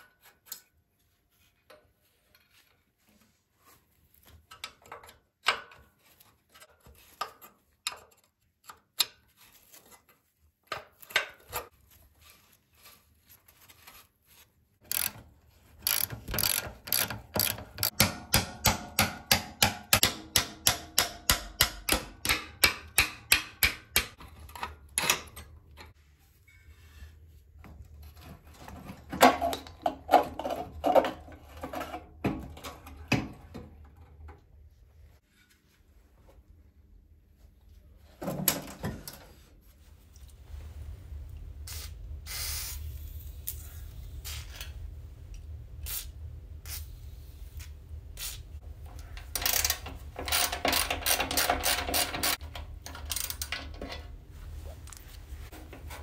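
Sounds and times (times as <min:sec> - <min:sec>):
ratchet wrench clicking: 0:14.8 - 0:15.2, 0:15.8 - 0:18.0, 0:49.3 - 0:52.4
metal clicks and knocks: 0:15.9 - 0:26.0, 0:48.8 - 0:54.2.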